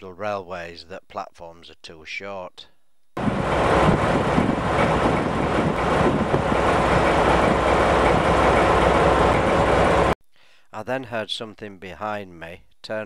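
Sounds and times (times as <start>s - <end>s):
diesel locomotive engine idling: 3.2s - 10.2s.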